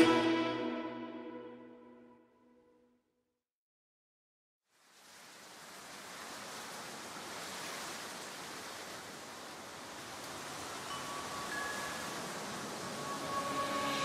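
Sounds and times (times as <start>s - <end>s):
held musical tones: 0.0s - 1.8s, 10.9s - 14.0s
steady wash of noise: 9.8s - 14.0s.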